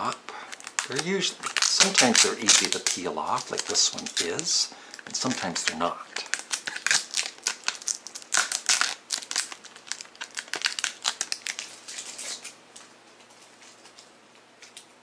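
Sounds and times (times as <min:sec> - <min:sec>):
sticker peeling off plastic: 0:00.6 - 0:12.6.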